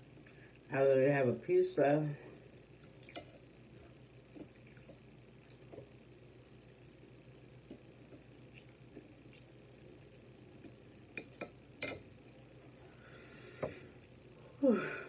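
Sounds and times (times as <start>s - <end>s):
quiet chewing: 2.6s - 6.6s, 7.6s - 14.3s.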